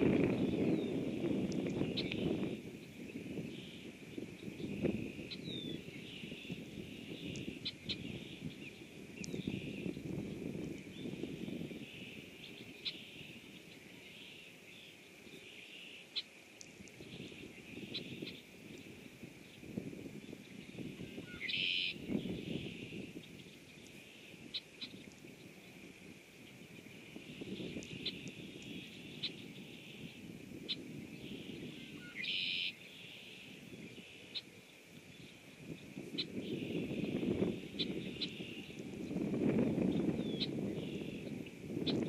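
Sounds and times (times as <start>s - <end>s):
chorus of animal calls: 30.7s - 34.5s.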